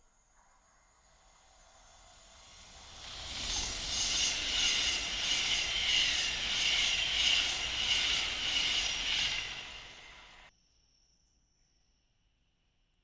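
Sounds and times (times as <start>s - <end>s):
high-speed train passing: 0.9s - 10.5s.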